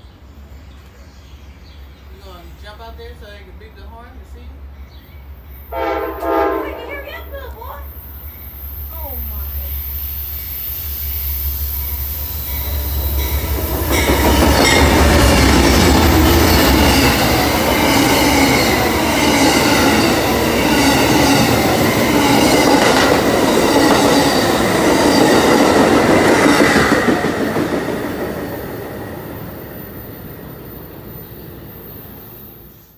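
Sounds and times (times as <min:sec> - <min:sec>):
train rumbling and clattering past: 0:00.0 - 0:32.9.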